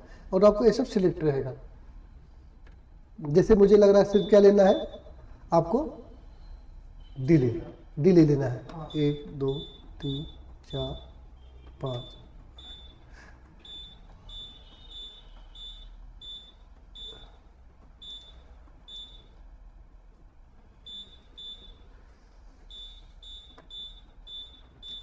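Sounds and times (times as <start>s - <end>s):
short high beeps: 4.0s - 5.2s, 8.8s - 17.4s.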